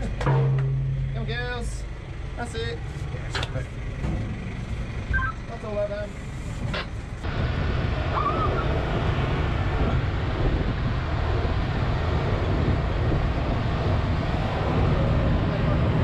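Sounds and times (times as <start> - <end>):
vehicle engine rumbling: 0.0 - 16.0
wind noise on microphone: 7.2 - 16.0.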